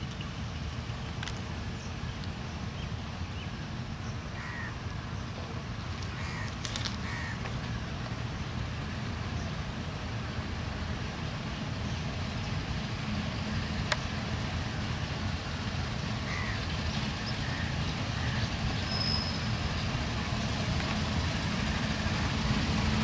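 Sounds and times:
diesel locomotive engine rumbling: 0:00.0 - 0:23.0
bird calling: 0:04.4 - 0:07.8, 0:16.2 - 0:19.5.

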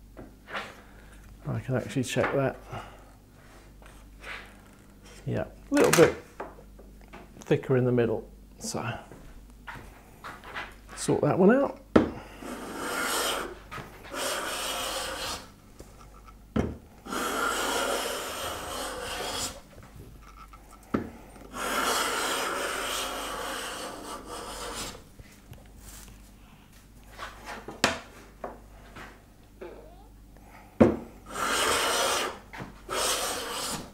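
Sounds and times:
hand plane scraping wood: 0:12.4 - 0:15.5, 0:17.0 - 0:19.8, 0:21.5 - 0:25.0, 0:31.3 - 0:33.9.

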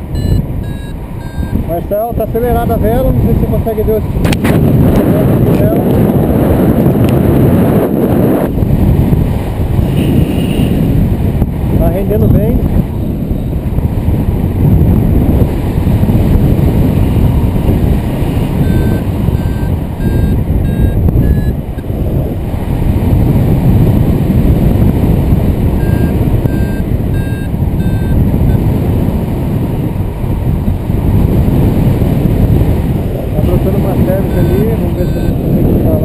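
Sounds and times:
wind rushing over microphone: 0:00.0 - 0:36.0
variometer short beeps: 0:00.1 - 0:01.7, 0:18.6 - 0:21.9, 0:25.8 - 0:28.6, 0:34.0 - 0:35.5.

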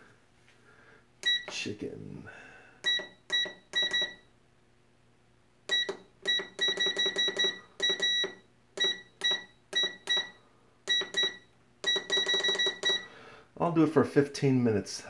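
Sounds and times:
air fryer control panel beeps: 0:01.2 - 0:01.7, 0:02.8 - 0:04.3, 0:05.7 - 0:13.1.

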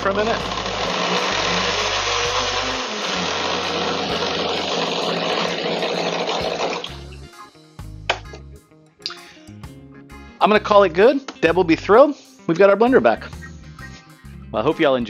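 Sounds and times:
blender crushing ice: 0:00.0 - 0:07.0.

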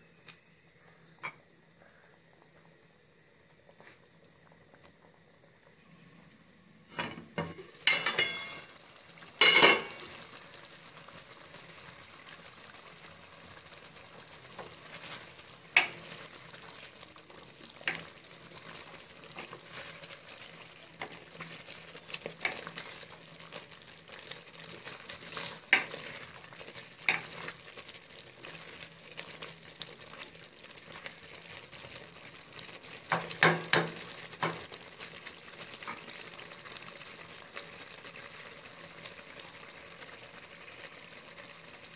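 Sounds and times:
food sizzling in a pan: 0:00.0 - 0:41.9
spoon knocking against pan: 0:33.1 - 0:34.6.

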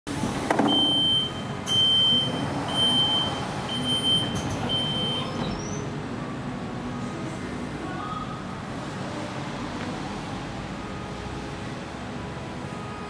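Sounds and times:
electronic warning beeps: 0:00.6 - 0:05.9.

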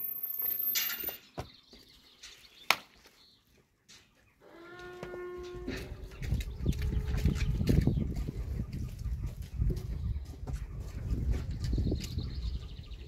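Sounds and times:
farm animal call: 0:04.4 - 0:07.7.

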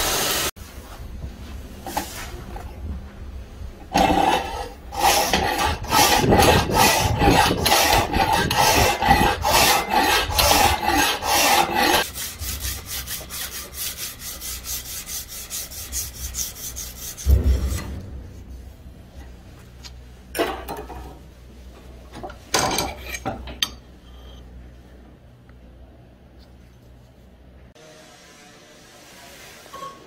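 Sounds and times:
file rasping on steel blade: 0:04.0 - 0:17.6
thump: 0:17.2 - 0:18.6.

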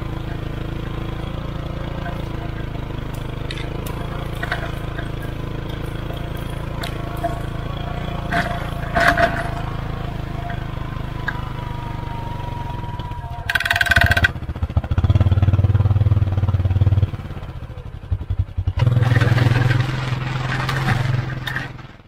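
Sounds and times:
utility vehicle engine under load: 0:00.0 - 0:22.0
blade scraping through soil: 0:18.8 - 0:22.0.

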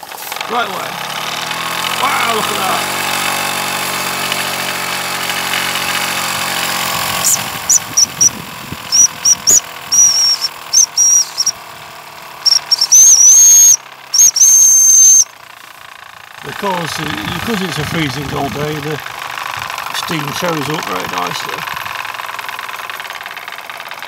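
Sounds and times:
toy steam engine hissing: 0:04.2 - 0:11.6, 0:12.4 - 0:15.8, 0:16.4 - 0:24.0
steam whistle toots: 0:12.4 - 0:15.3.

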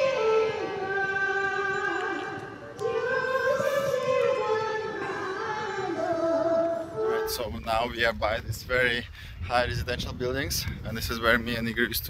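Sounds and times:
high voice singing long notes: 0:00.0 - 0:07.3.

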